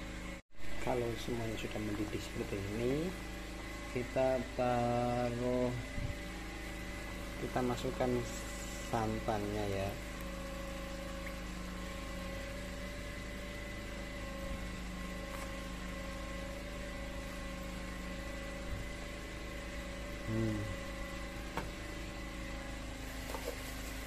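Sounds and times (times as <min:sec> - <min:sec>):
steady machine hum: 0:00.0 - 0:24.0.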